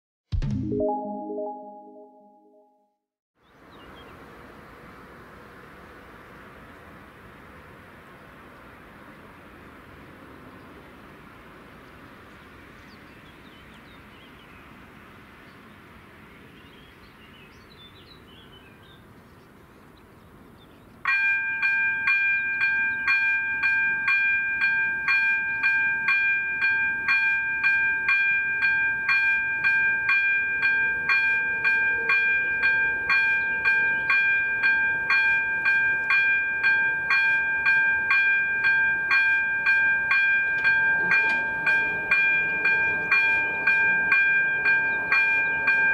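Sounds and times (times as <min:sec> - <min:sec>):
faint outdoor background: 0:00.3 - 0:45.9
level crossing warning bell: 0:21.1 - 0:45.9.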